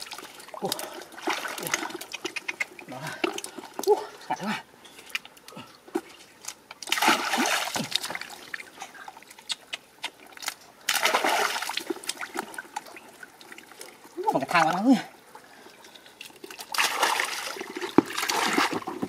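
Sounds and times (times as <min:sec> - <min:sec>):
small water drips: 0:00.0 - 0:04.2, 0:04.8 - 0:18.7
basket splashing in muddy water: 0:06.9 - 0:08.4, 0:10.9 - 0:12.6, 0:16.6 - 0:19.0.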